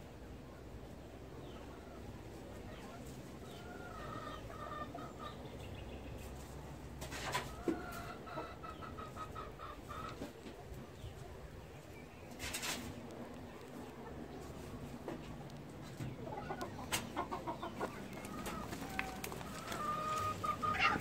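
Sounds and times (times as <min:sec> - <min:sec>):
fowl clucking: 0:07.1 - 0:10.6, 0:15.8 - 0:21.0.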